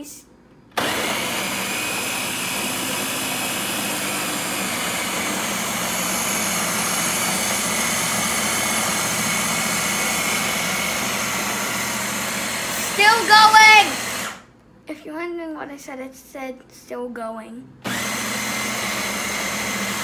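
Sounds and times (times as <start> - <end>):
food chopper motor chopping: 0.7 - 14.5, 17.8 - 20.0.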